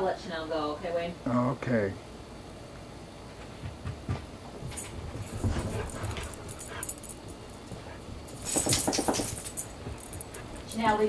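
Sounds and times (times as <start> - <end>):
dogs thumping and scuffling: 3.5 - 11.0.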